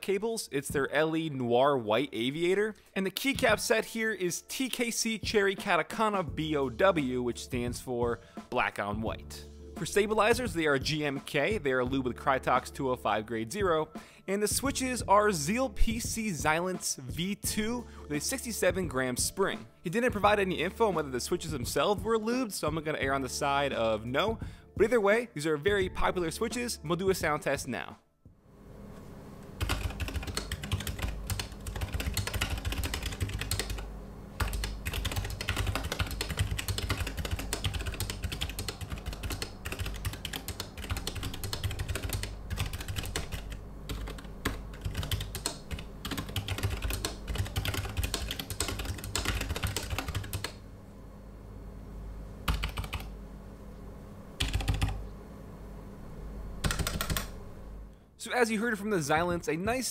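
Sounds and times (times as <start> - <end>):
mechanical keyboard typing: 29.6 - 33.8, 34.4 - 50.5, 52.5 - 53.1, 54.4 - 55.0, 56.6 - 57.3.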